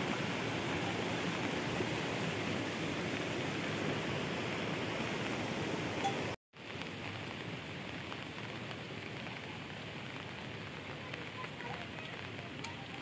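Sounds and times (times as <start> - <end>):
steady rain hiss: 0.0 - 13.0
raindrop ticks: 6.0 - 13.0.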